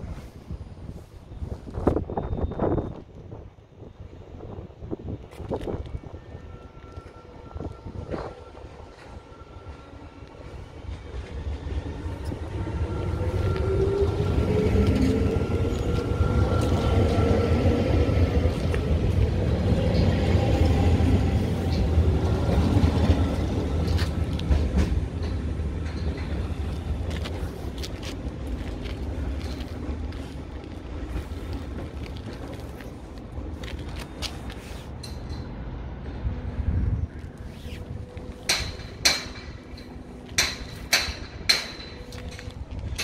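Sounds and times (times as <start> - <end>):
wheels rumbling on rail: 0.0 - 43.0.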